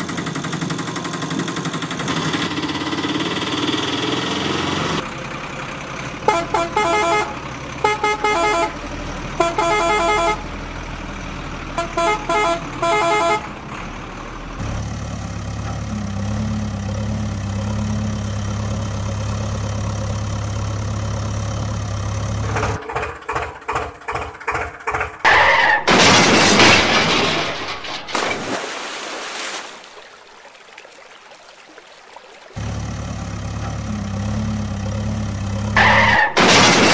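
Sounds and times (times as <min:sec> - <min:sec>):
truck engine hum: 0:00.0 - 0:28.2, 0:29.6 - 0:36.9
rhythmic engine chugging: 0:22.4 - 0:25.2.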